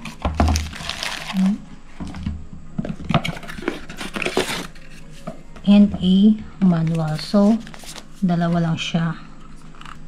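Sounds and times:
packaging rustling and crinkling: 0:00.0 - 0:01.6, 0:03.2 - 0:05.2, 0:06.8 - 0:08.2.

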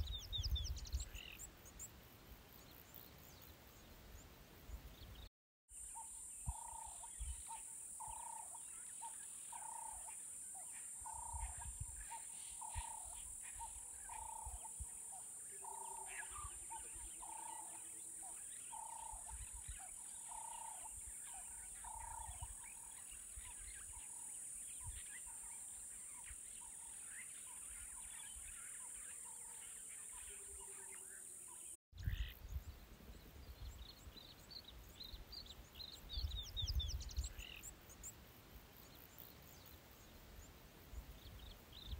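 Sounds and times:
steady high-pitched hiss: 0:00.0 - 0:41.9
bird chirps: 0:05.0 - 0:38.2.

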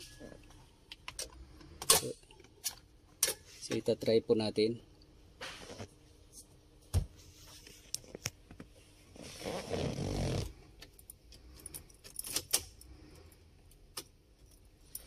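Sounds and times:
small metal parts clinking: 0:10.8 - 0:15.0.

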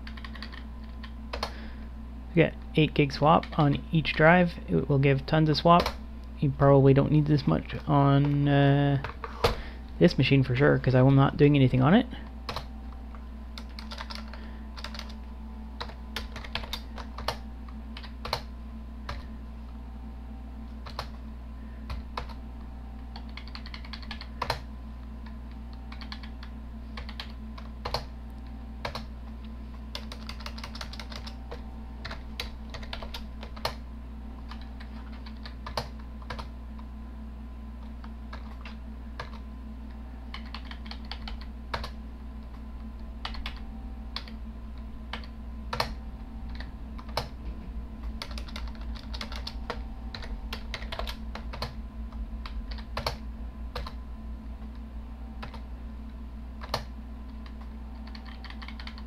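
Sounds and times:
computer keyboard typing: 0:00.0 - 0:01.5, 0:13.6 - 0:15.2, 0:15.8 - 0:17.4, 0:18.0 - 0:18.5, 0:20.8 - 0:21.2, 0:23.1 - 0:24.7, 0:25.9 - 0:28.1, 0:28.8 - 0:29.1, 0:29.9 - 0:33.8, 0:34.5 - 0:36.5, 0:38.0 - 0:39.4, 0:40.3 - 0:42.0, 0:43.2 - 0:43.6, 0:45.1 - 0:47.3, 0:48.0 - 0:51.8, 0:52.4 - 0:54.0, 0:55.4 - 0:55.6, 0:56.6 - 0:59.0
steady low hum: 0:00.0 - 0:59.0.

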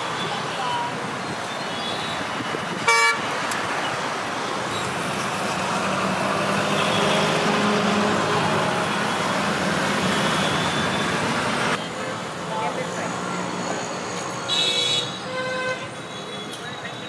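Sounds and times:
road traffic noise: 0:00.0 - 0:17.0
vehicle horn honk: 0:02.8 - 0:03.3.

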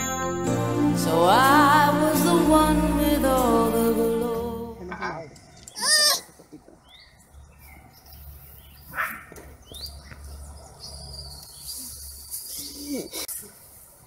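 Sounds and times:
birds chirping: 0:04.8 - 0:13.3.

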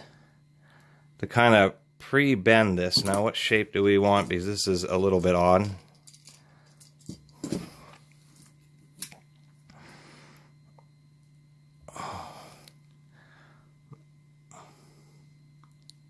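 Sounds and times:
steady low hum: 0:00.0 - 0:16.0
breathy exhales: 0:11.9 - 0:13.8.

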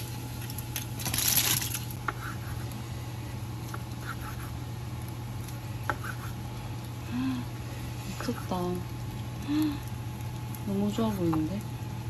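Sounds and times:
steady low hum: 0:00.0 - 0:12.0
rustling and crinkling: 0:00.4 - 0:02.0.

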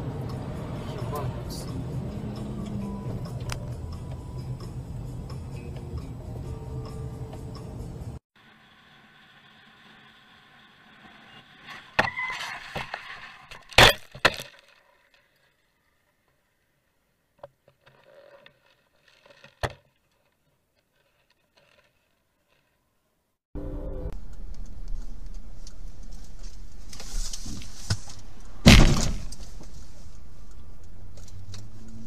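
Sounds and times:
road and wind noise: 0:00.0 - 0:18.0, 0:23.6 - 0:32.0
hard impacts and clattering: 0:27.3 - 0:29.9.

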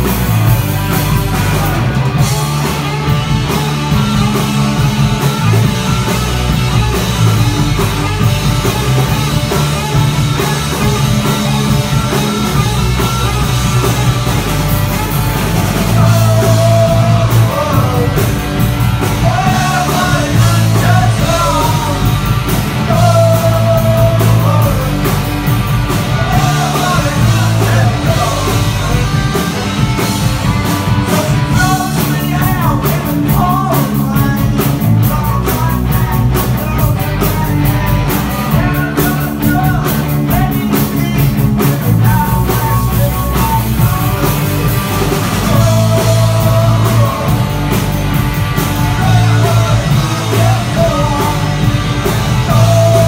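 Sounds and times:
drums: 0:00.0 - 0:53.0
electric guitars: 0:00.0 - 0:53.0
man singing: 0:15.8 - 0:25.2, 0:26.0 - 0:30.0, 0:31.0 - 0:47.8, 0:48.8 - 0:53.0.

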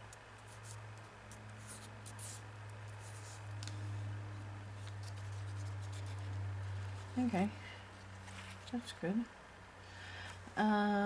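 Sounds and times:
steady low hum: 0:00.0 - 0:11.0
fingertips rubbing tea bag: 0:01.6 - 0:03.9, 0:04.8 - 0:07.3.

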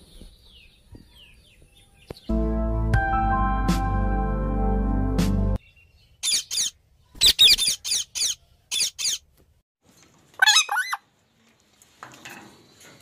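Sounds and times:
parakeet squawking: 0:06.2 - 0:09.2, 0:10.4 - 0:11.0.

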